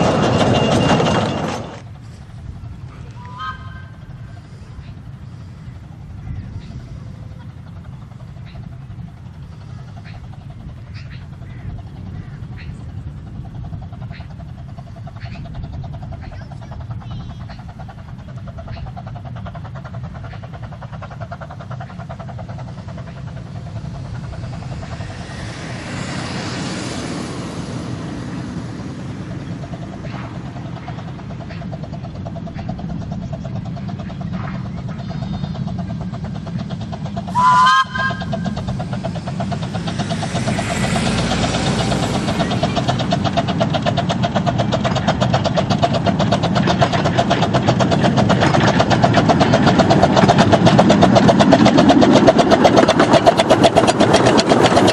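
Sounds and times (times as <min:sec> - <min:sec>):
steam locomotive exhaust beats: 0:00.0 - 0:54.9
steam whistle blast: 0:03.2 - 0:04.0, 0:37.3 - 0:38.4.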